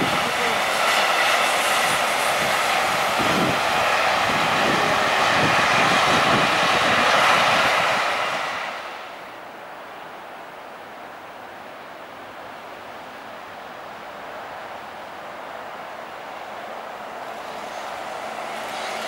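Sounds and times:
train wheels rolling on rails: 0.0 - 9.2, 14.3 - 19.0.

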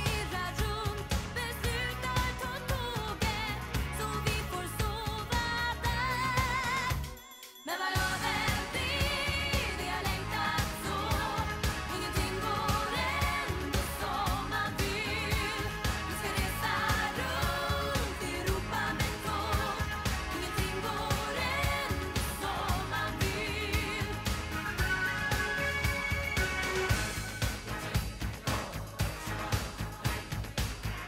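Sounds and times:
drums and bass beat: 0.0 - 7.2, 8.0 - 31.0
woman singing pop song: 0.0 - 25.4.

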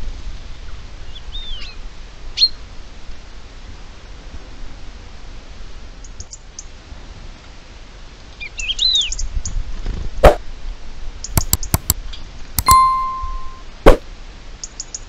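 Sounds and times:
sharp knocks and clicks: 11.4 - 12.0
bell-like ding: 12.6 - 13.7.

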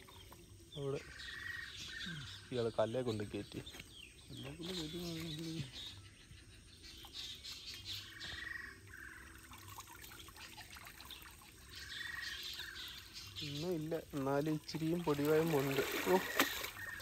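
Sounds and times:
water splashing and dripping: 7.0 - 17.0.

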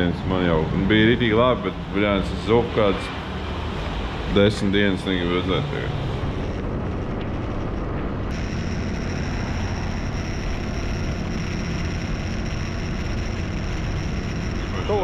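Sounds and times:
thin high whine: 4.9 - 15.0
scooter engine running: 8.3 - 15.0.

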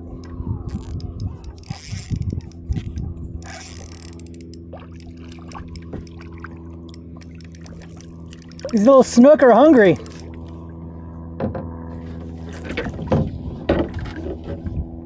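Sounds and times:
fishing reel clicking: 0.2 - 10.5.

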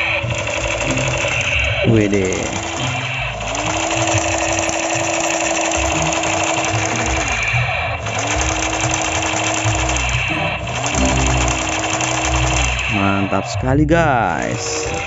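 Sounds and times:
toy gun electronic rattle: 0.0 - 13.5.

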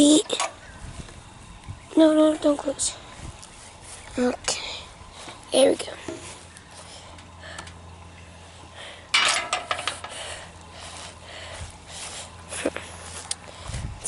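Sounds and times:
low steady hum: 0.0 - 14.0
hard objects clattering: 9.1 - 10.2.

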